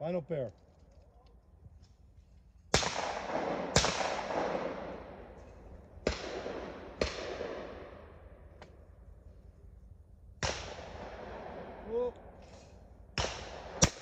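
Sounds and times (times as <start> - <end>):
shotgun shots echoing: 2.7 - 8.6, 10.4 - 14.0.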